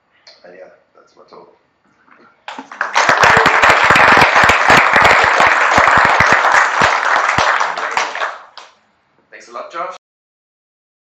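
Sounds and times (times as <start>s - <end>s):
small audience applauding: 2.5s - 8.8s.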